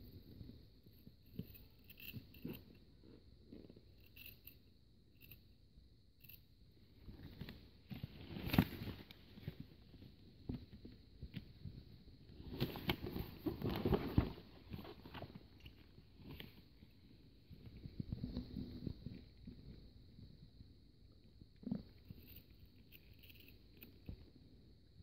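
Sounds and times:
rubber rustling: 0:12.3 - 0:19.4.

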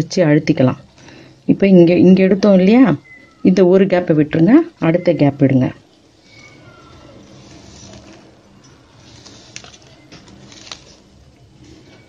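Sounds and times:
plastic rubbing on plastic: 0:06.2 - 0:12.0.

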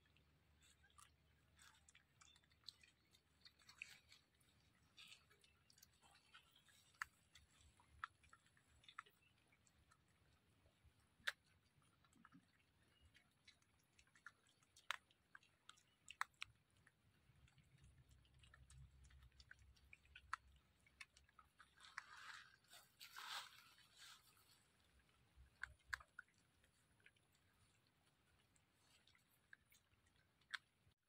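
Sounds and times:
piglet chewing leaves: 0:00.0 - 0:31.0
leaves rustling: 0:21.8 - 0:24.9.

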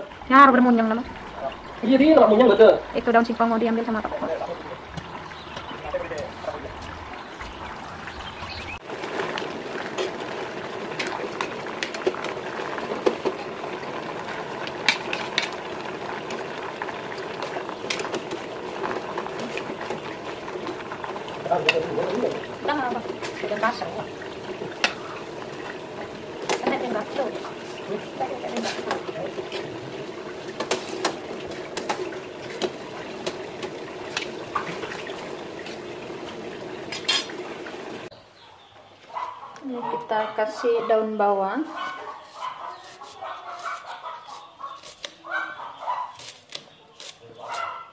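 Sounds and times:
water boiling in a pot: 0:00.0 - 0:38.2.

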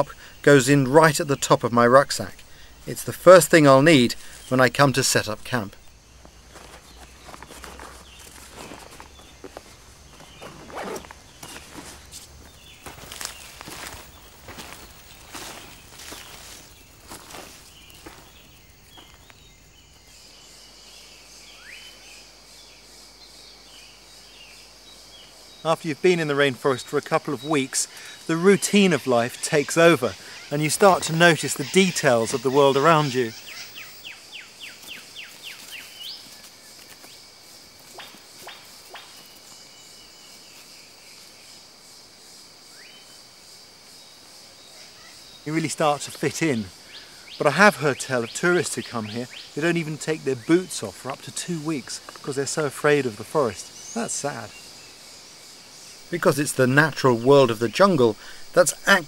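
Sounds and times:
high insect drone: 0:00.0 - 0:59.0
bird chirps: 0:12.4 - 0:22.3, 0:27.4 - 0:36.5.

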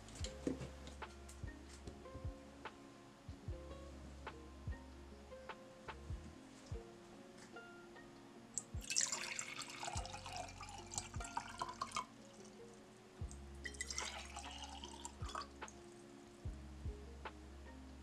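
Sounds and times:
water pouring into glass jar: 0:08.6 - 0:12.4, 0:13.6 - 0:15.5.

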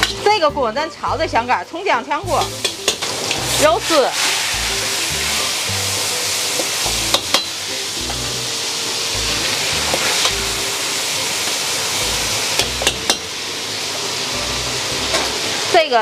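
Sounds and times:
food sizzling in hot oil: 0:00.0 - 0:16.0
metal spatula clicking on wok: 0:02.4 - 0:03.4.

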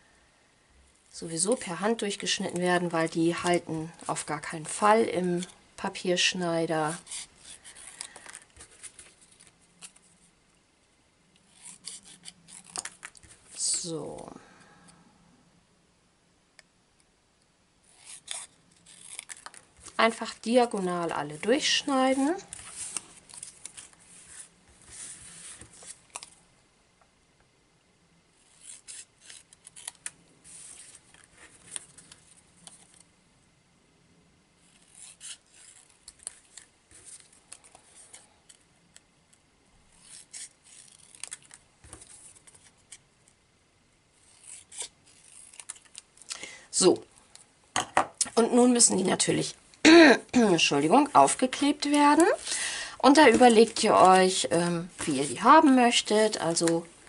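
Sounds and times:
scissors snipping paper: 0:17.9 - 0:24.0, 0:28.5 - 0:30.2, 0:40.0 - 0:43.0, 0:44.3 - 0:46.1.

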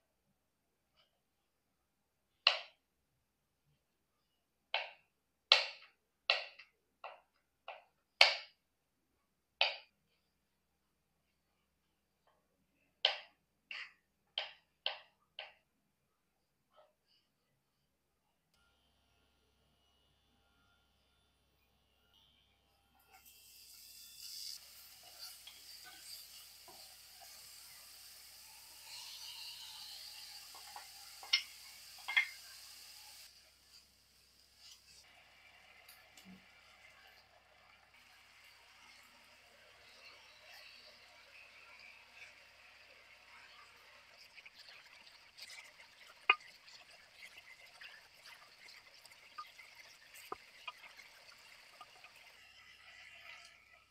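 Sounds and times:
food sizzling in a frying pan: 0:23.1 - 0:53.8.

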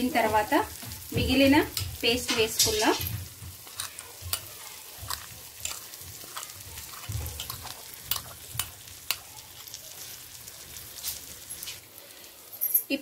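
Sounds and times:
oil sizzling in a pan: 0:00.0 - 0:13.0.

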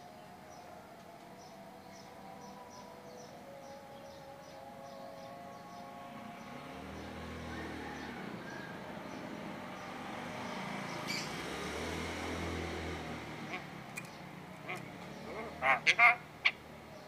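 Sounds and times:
bird harsh calls: 0:13.4 - 0:17.0.

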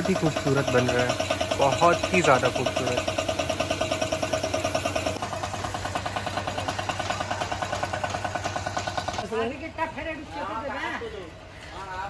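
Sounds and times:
compressor pulsing: 0:00.0 - 0:09.2.

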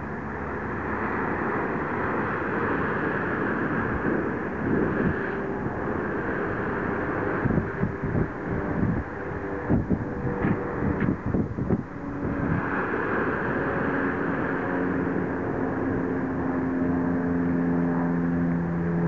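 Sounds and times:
low steady hum: 0:00.0 - 0:19.0
wind buffeting microphone: 0:00.0 - 0:19.0.

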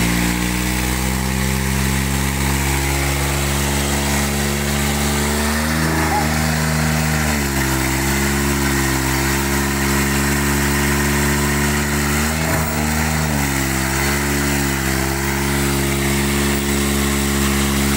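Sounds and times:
tractor diesel engine running: 0:00.0 - 0:17.9.

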